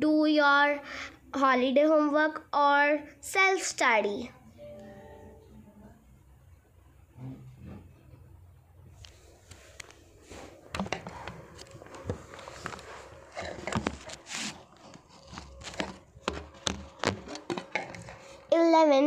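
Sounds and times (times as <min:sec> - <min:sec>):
handling noise clicks and rustles: 0:09.4 - 0:18.5.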